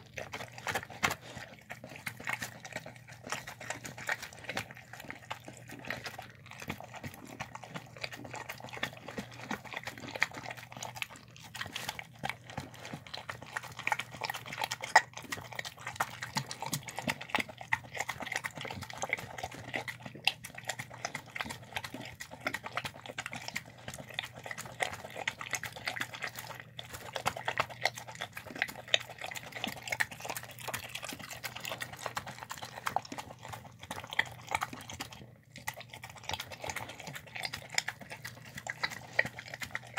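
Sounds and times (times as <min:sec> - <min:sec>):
dog chewing wet food: 0:00.0 - 0:39.9.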